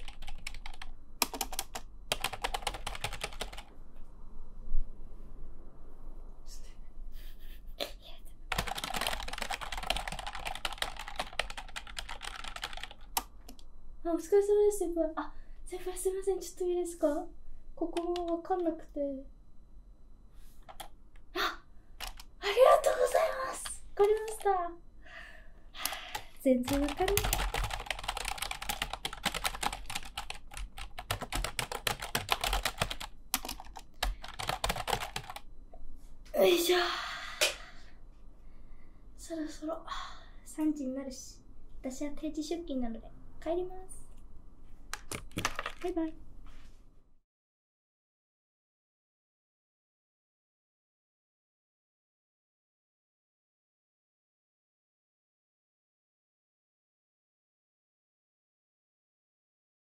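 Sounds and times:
typing on computer keyboard: 0.0 - 3.7, 8.5 - 13.6, 20.6 - 21.0, 22.0 - 22.3, 24.0 - 24.5, 25.9 - 35.5, 44.9 - 46.1.

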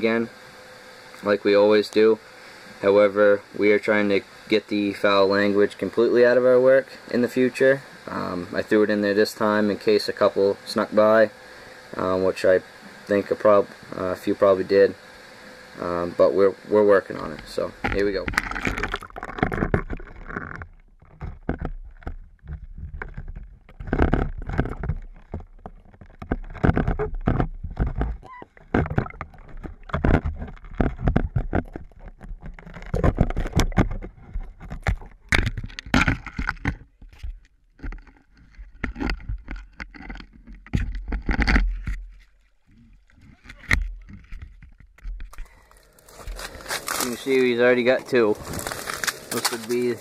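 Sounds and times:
water sloshing against camera housing: 17.2 - 50.0.

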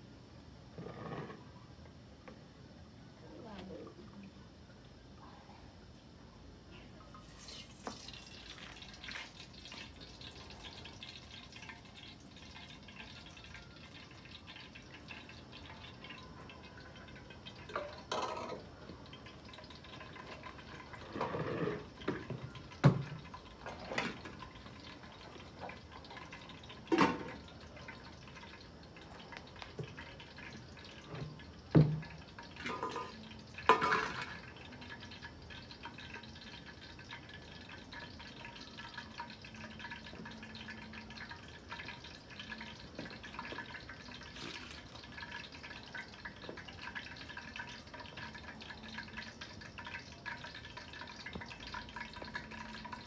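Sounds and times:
metal plates and lids clattering: 17.7 - 18.6, 32.6 - 34.4.

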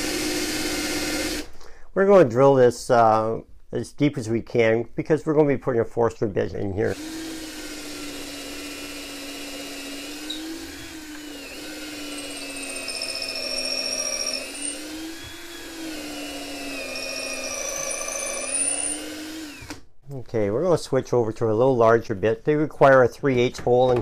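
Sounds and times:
cordless drill whining into wood: 6.9 - 19.9.

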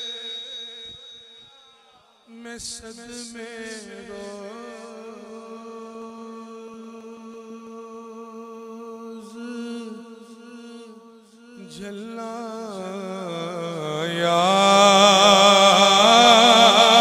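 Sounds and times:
man singing long held note: 0.0 - 17.0
low vocal drone: 14.2 - 17.0.

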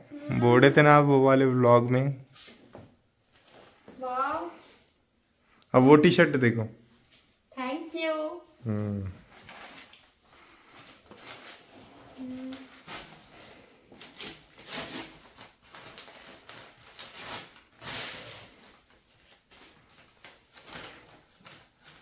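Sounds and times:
fabric and wrapping rustling: 2.4 - 5.6, 9.2 - 22.0.

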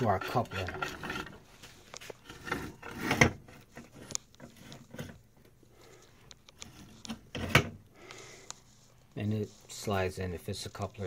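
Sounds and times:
metal parts tapping and rubbing: 0.0 - 5.3.

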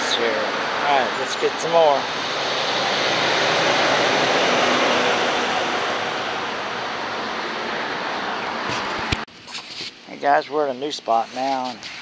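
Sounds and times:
traffic passing by: 0.0 - 9.3.

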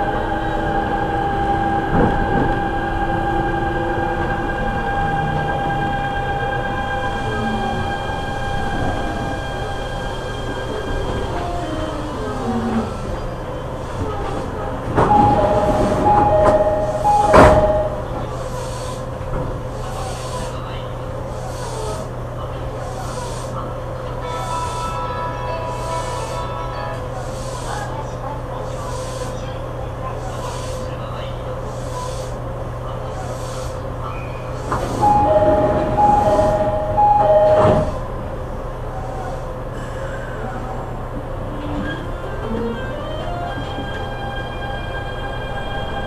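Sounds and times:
train car low hum: 0.0 - 46.0
train doors thumping: 1.5 - 3.6, 10.4 - 20.1, 34.5 - 38.3
two-note door chime: 15.0 - 18.3, 35.0 - 38.0.

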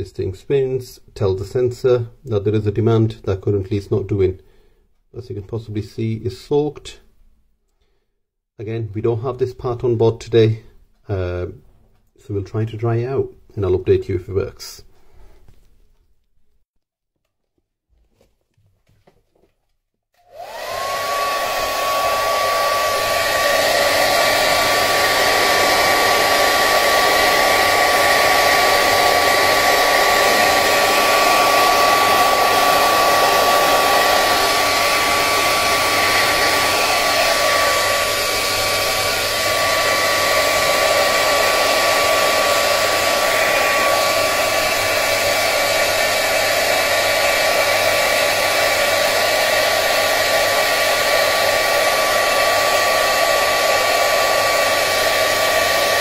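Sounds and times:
hairdryer running: 20.2 - 56.0.

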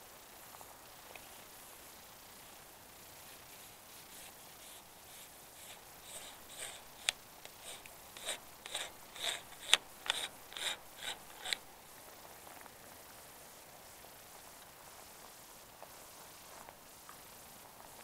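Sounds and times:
short scraping rasps: 3.5 - 11.7
sharp clicks: 4.6 - 11.7.

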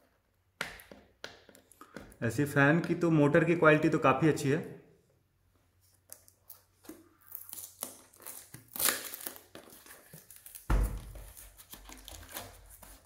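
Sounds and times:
cardboard and plastic crinkling: 6.3 - 13.0.

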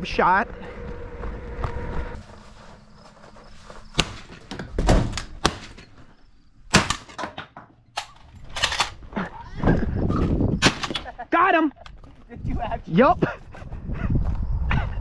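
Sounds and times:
footsteps in trailer: 0.0 - 6.3.

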